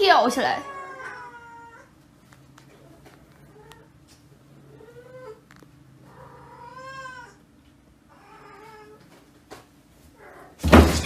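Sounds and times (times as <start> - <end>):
cat meowing: 0.6 - 1.9, 6.0 - 7.4.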